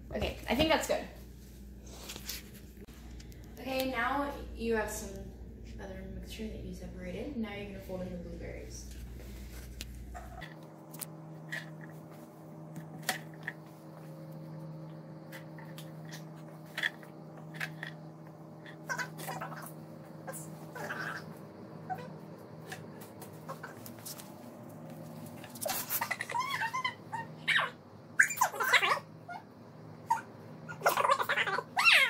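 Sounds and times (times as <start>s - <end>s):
steady low hum: 0.0s - 32.0s
dog whining: 18.7s - 22.2s, 25.6s - 32.0s.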